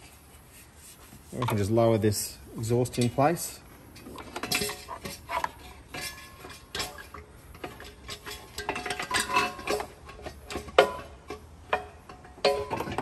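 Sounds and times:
metallic clinks and clanks: 2.8s - 13.0s.

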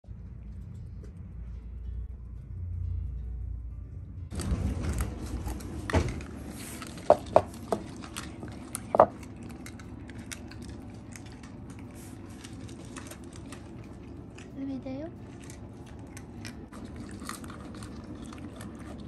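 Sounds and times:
cats crunching dry food: 4.3s - 19.0s
bowls knocking on wooden floor: 7.1s - 7.9s, 8.9s - 9.1s.

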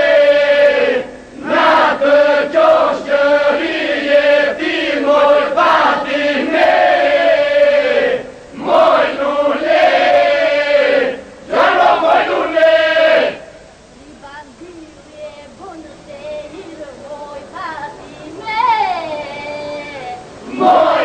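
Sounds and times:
group of voices singing: 0.0s - 13.6s, 18.4s - 21.0s.

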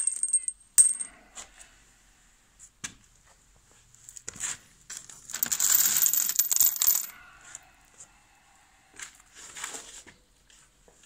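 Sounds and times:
metal bolts clinking and rattling: 0.0s - 1.1s, 5.3s - 7.1s.

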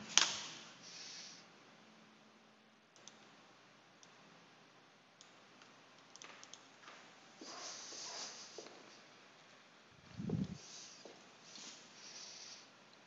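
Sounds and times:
computer mouse clicks: 3.0s - 3.3s, 6.0s - 6.7s
soft rush of noise: 6.6s - 13.0s.

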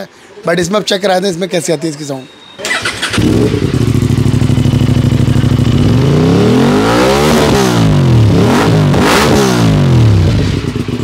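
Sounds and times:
motorcycle engine idling and revving: 2.6s - 11.0s.

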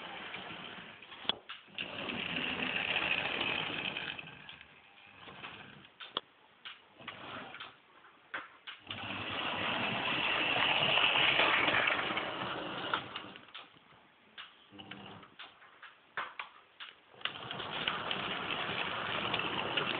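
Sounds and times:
model train motor whirring: 0.0s - 6.2s, 8.8s - 13.6s, 17.2s - 19.9s.

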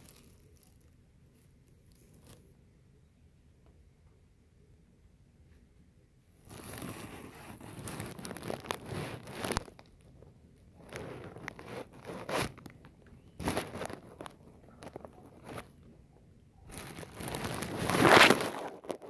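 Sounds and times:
plastic bags rustling: 0.0s - 2.5s, 6.5s - 15.9s, 16.7s - 19.0s.

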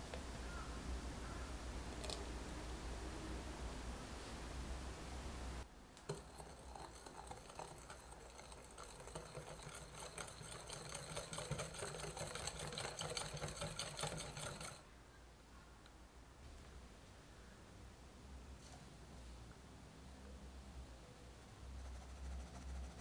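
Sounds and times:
batter sloshing: 6.1s - 13.2s
whisk clattering in glass bowl: 6.1s - 14.8s.

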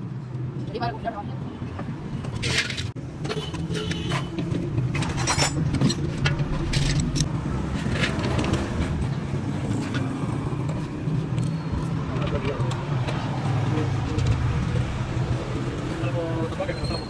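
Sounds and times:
metal tools clinking and scraping: 2.4s - 8.6s.

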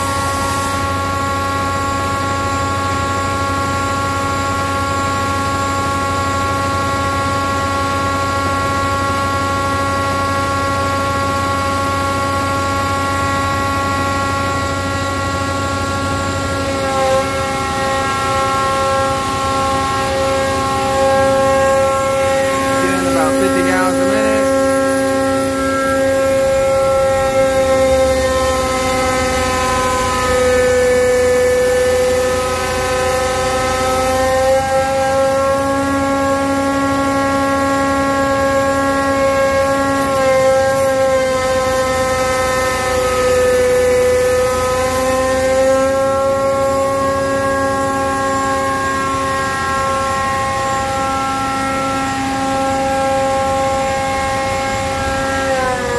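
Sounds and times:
hydraulic pump whining: 11.5s - 39.1s.

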